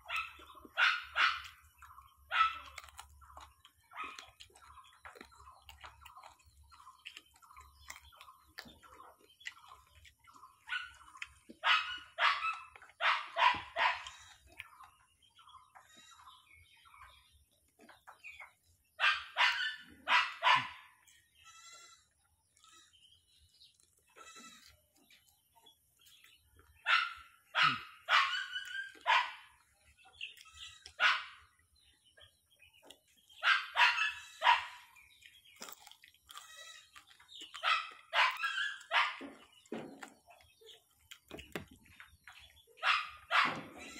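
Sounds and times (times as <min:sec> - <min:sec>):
dog barking: 0:00.0 - 0:05.2, 0:10.5 - 0:14.2, 0:19.0 - 0:21.0, 0:26.8 - 0:29.6, 0:30.8 - 0:31.6, 0:33.4 - 0:35.0, 0:37.5 - 0:39.4, 0:42.8 - 0:43.8.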